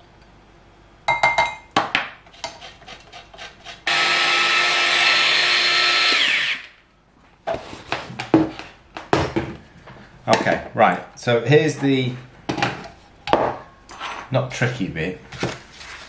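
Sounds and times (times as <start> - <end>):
food chopper motor whirring: 3.8 - 6.8.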